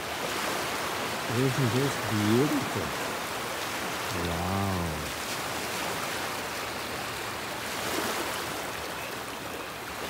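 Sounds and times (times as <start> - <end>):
waves breaking on stony beach: 0.0 - 10.0.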